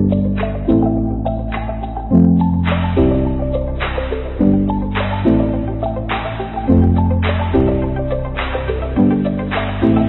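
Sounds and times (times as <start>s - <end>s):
sustained low chords: 0.0s - 10.0s.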